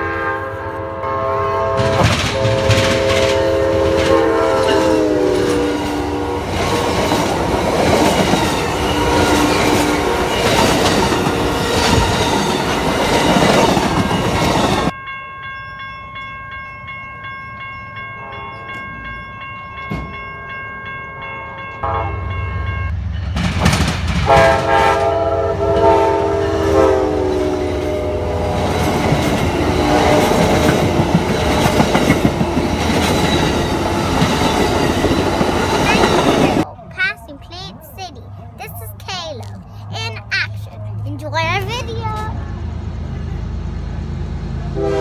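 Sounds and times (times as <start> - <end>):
train horn: 0.0 - 7.1, 8.8 - 10.6, 21.8 - 22.3, 24.2 - 29.0, 29.7 - 30.7, 44.6 - 45.0
railroad crossing bell ringing: 0.0 - 23.4, 25.1 - 36.7
low rumble of approaching train: 0.0 - 45.0
train cars rushing and clattering: 1.4 - 15.0, 16.6 - 45.0.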